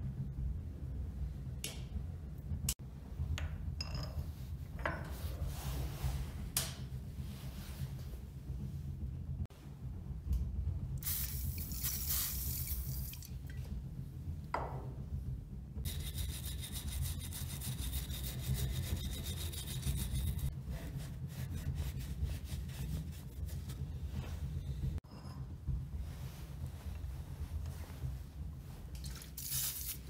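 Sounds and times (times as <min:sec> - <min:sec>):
steady low hum: 0:00.0 - 0:30.0
wire brush scrubbing steel rod: 0:15.9 - 0:20.5.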